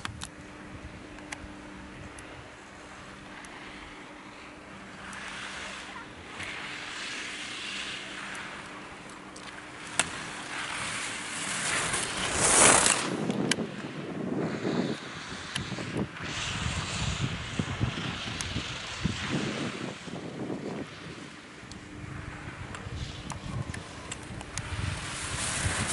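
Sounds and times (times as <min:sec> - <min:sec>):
skis scraping on hard snow: 0:05.0 - 0:21.2, 0:22.0 - 0:25.9.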